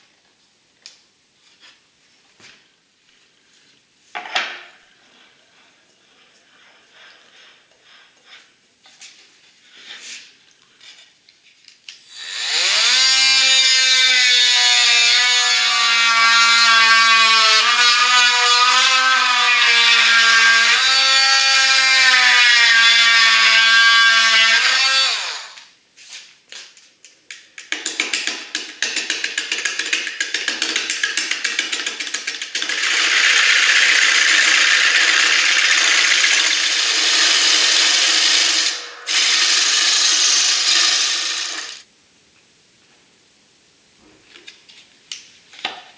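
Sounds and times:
power drill whining: 12.1s - 25.6s, 32.5s - 41.9s
gouge cutting wood on lathe: 32.6s - 41.8s.

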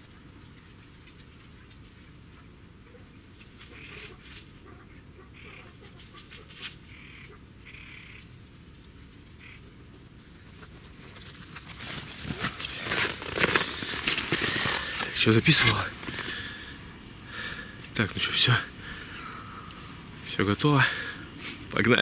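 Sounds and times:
birds calling: 2.4s - 8.4s, 9.3s - 9.8s, 13.6s - 22.0s
footsteps crunching in snow: 9.4s - 18.8s.

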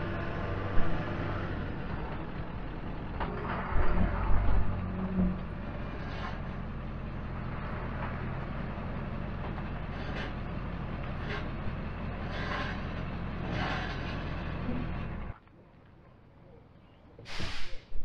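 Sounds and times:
diesel truck engine running: 0.0s - 15.4s
brief scraping noises: 6.0s - 6.4s, 12.2s - 14.3s, 17.2s - 18.0s.

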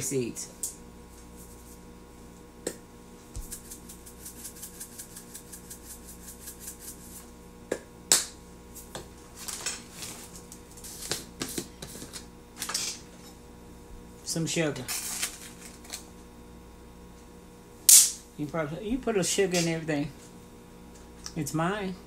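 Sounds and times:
spice shaker rattling: 3.4s - 7.3s.

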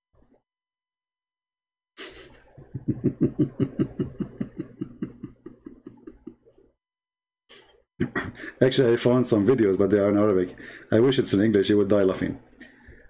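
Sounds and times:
man laughing: 2.0s - 6.4s, 8.0s - 8.8s
breath: 10.6s - 10.9s, 12.6s - 13.0s.

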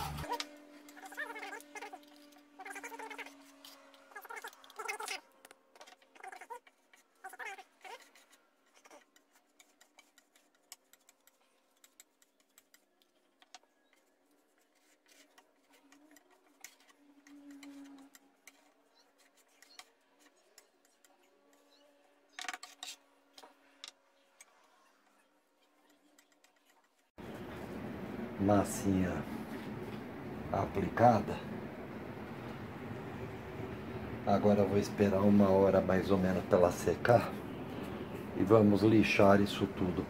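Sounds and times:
spatula scraping wood filler: 5.8s - 27.1s.

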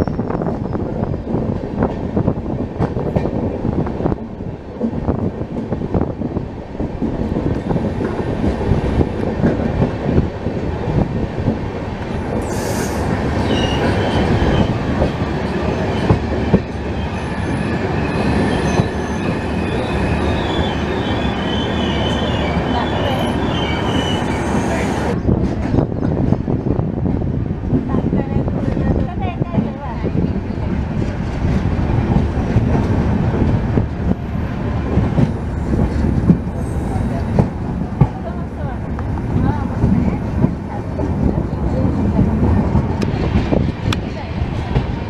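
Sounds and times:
train wheels clattering on rails: 6.8s - 19.8s, 25.2s - 45.0s
high wheel squeal: 12.4s - 14.8s, 17.0s - 25.0s.

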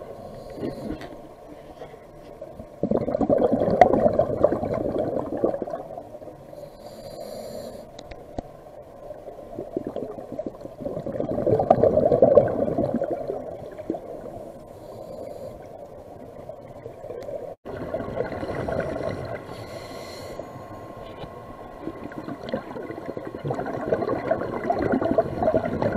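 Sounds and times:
regulator inhale hiss: 0.0s - 2.4s, 6.4s - 8.2s, 14.4s - 16.0s, 18.5s - 21.3s
gurgling exhaust bubbles: 2.8s - 6.1s, 9.6s - 14.4s, 17.7s - 19.5s, 21.7s - 25.9s.

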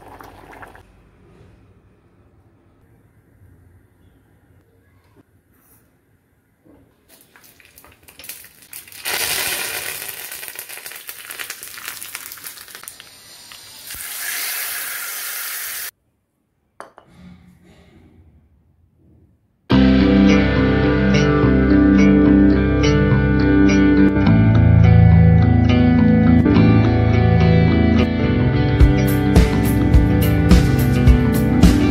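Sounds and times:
seeds popping in hot oil: 7.3s - 14.3s
hot oil sizzling in curry: 8.1s - 15.9s
guitar music: 19.7s - 31.9s.

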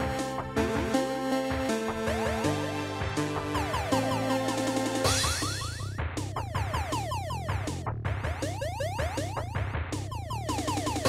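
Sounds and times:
pulsing bass line: 0.0s - 11.0s.

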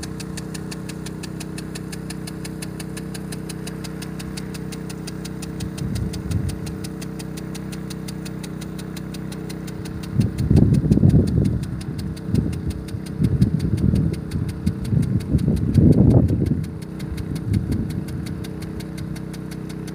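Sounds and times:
fast even ticking: 0.0s - 19.9s
petrol engine running: 0.0s - 19.9s.

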